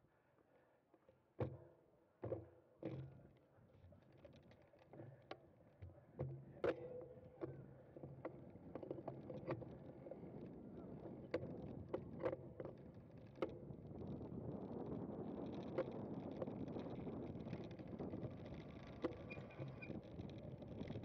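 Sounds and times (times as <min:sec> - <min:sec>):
bicycle clicks and rattles: 0:14.3 - 0:21.0.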